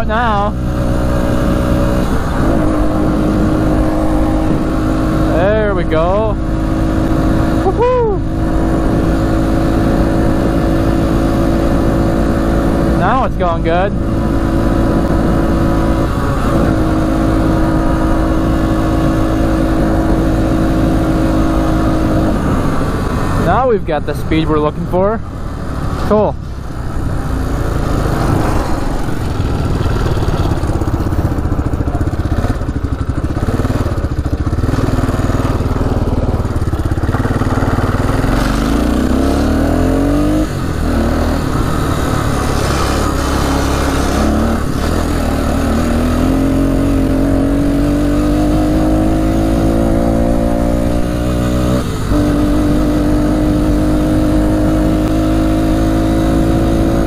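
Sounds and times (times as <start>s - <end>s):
atv engine running at speed: 0.0s - 57.0s.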